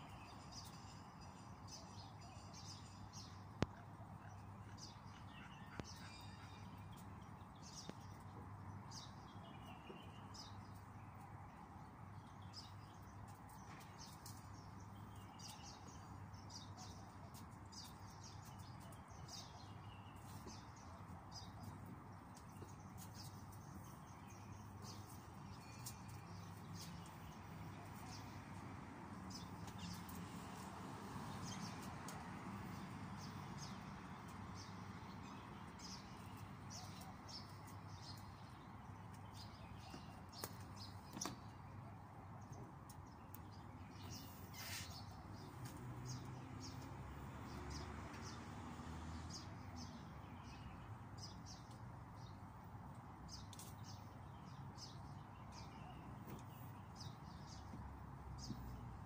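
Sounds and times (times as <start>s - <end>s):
birds chirping and calling: 1.7s - 8.2s, 43.9s - 45.5s.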